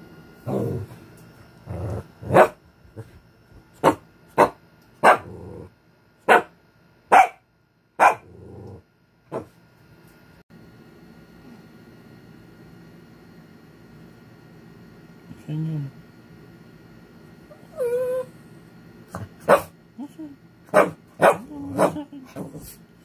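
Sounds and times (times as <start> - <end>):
dog growling: 0.4 - 1.0, 1.6 - 3.1, 5.1 - 5.7, 8.1 - 8.8
dog barking sharply: 6.3 - 6.5, 7.1 - 7.4, 8.0 - 8.2.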